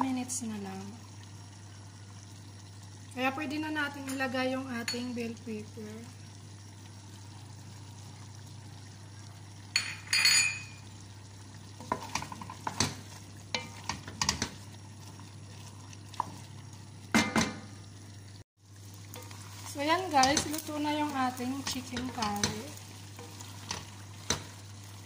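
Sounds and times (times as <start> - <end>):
utensil clinking against a pot: 4.0 - 5.2, 9.7 - 10.8, 11.8 - 14.7, 19.1 - 24.6
spoon stirring stew in a pot: 11.8 - 16.9, 19.0 - 25.0.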